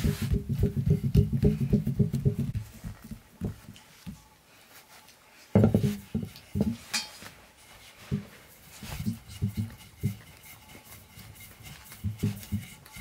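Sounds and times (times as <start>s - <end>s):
fingertips patting dough: 0.0s - 4.2s, 8.0s - 13.0s.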